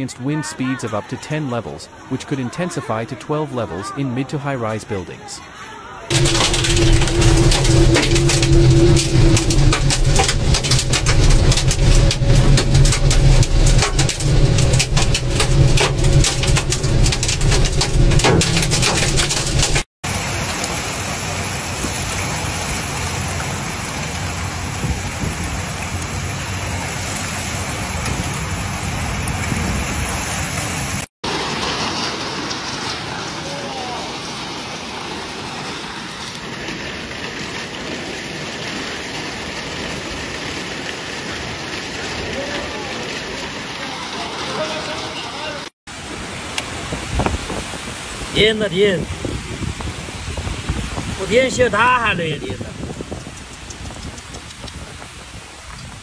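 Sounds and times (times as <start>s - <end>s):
heavy rain downpour: 5.4s - 56.0s
heavy low rumble: 6.1s - 19.9s
hail pelting a windscreen: 6.1s - 26.1s, 31.2s - 45.6s.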